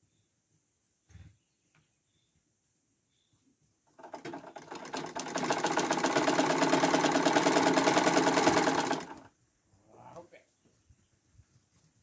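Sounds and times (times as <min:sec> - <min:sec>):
sewing machine stitching: 0:03.9 - 0:09.3.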